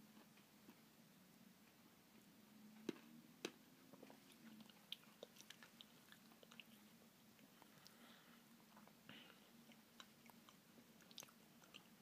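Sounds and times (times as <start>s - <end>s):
person chewing: 4.0s - 9.0s, 9.6s - 12.0s.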